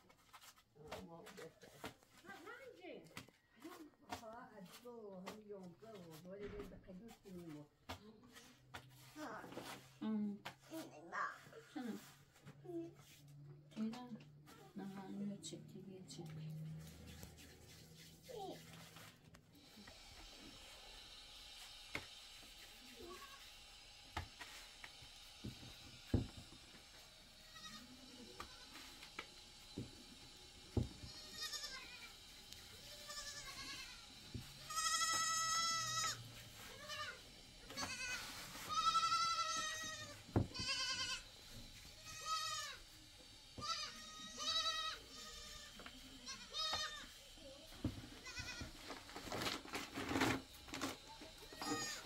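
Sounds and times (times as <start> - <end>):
goats bleating: 31.1 - 32.2, 32.8 - 41.3, 42.0 - 42.8, 43.6 - 47.2, 48.2 - 48.8, 51.4 - 52.0.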